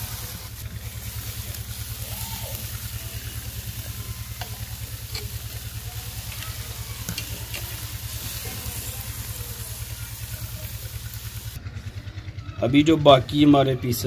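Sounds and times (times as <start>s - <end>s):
fish sizzling over charcoal: 0.0s - 11.6s
tongs clicking against grate: 4.4s - 5.6s, 6.2s - 7.8s.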